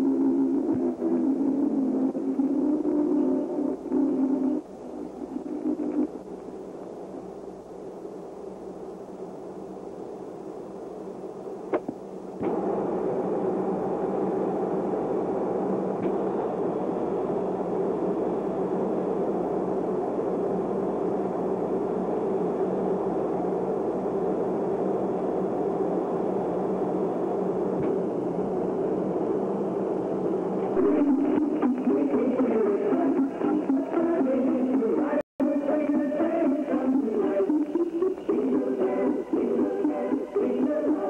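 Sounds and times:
music: 0:00.0 - 0:06.0, 0:30.7 - 0:41.0
mechanical whir with low hum: 0:00.0 - 0:41.0.

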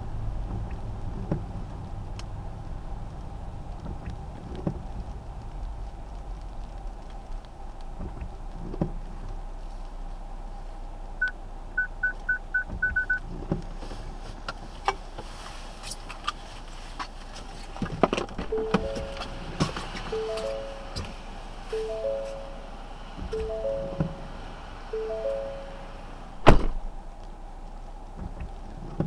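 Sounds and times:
car cabin and road noise: 0:00.0 - 0:29.0
short electronic beeps: 0:18.4 - 0:19.5, 0:20.1 - 0:21.1, 0:21.7 - 0:26.0
low notes of a tune: 0:18.4 - 0:26.4.

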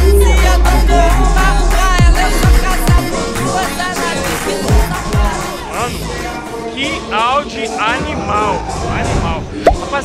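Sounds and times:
heavy bass line: 0:00.0 - 0:06.4
loud music with singing: 0:00.0 - 0:10.0.

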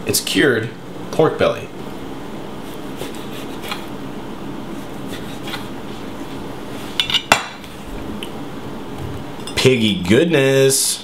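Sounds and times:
knife scraping wooden board: 0:02.6 - 0:03.9, 0:05.0 - 0:05.7.

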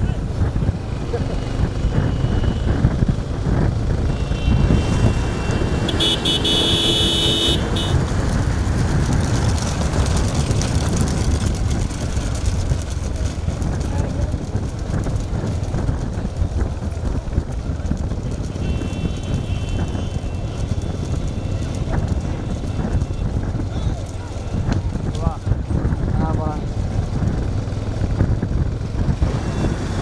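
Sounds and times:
vehicle engines: 0:00.0 - 0:30.0
wind noise: 0:00.0 - 0:30.0
vehicle horn sounding: 0:04.1 - 0:08.0, 0:18.5 - 0:23.3.

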